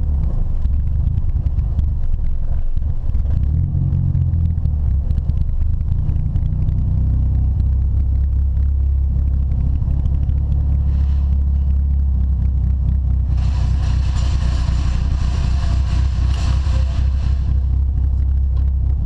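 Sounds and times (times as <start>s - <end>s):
car engine low drone: 0.0s - 19.0s.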